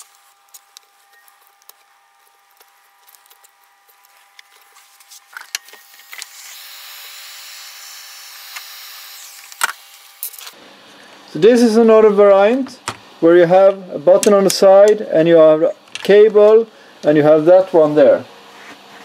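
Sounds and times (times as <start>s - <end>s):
wires clicking and rustling: 0.0s - 6.3s
heat gun blowing: 5.0s - 10.6s.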